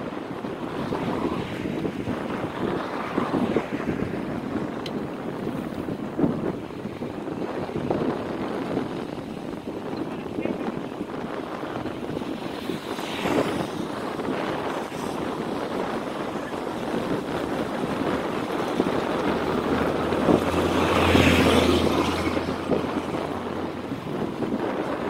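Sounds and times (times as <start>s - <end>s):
traffic noise: 0.0s - 25.0s
wind buffeting microphone: 0.0s - 25.0s
vehicle engine passing: 11.8s - 24.6s.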